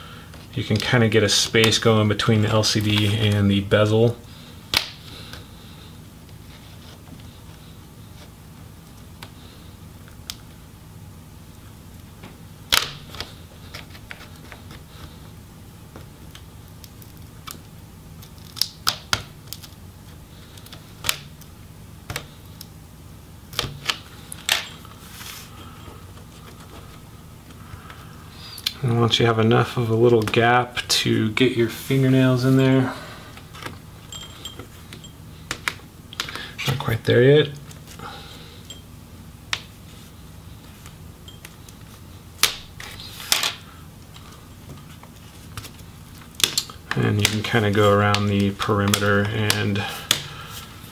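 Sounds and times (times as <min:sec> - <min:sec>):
faint low hum: 0:00.0 - 0:50.9
clips and adhesive crackling: 0:15.9 - 0:19.8.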